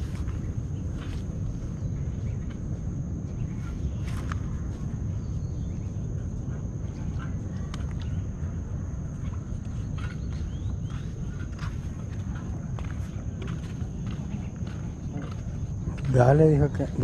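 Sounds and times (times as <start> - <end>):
wind rumble on microphone: 0.0 - 17.0
faint chirps and clicks: 7.0 - 8.6.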